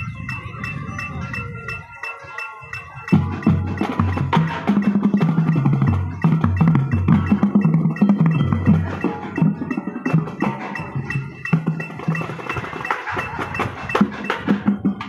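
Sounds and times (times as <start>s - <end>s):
held higher notes: 0.0s - 15.0s
marching bass drums: 3.0s - 15.0s.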